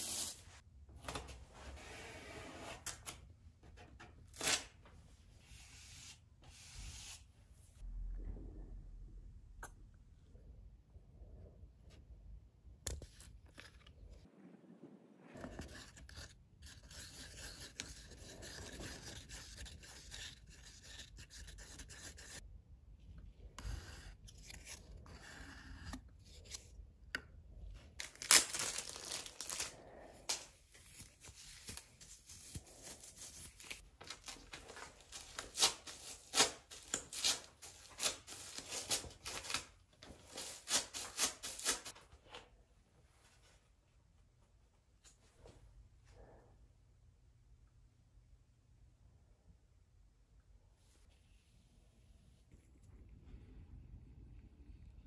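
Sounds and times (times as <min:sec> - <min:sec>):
hands rubbing and scraping: 0:28.2 - 0:39.7.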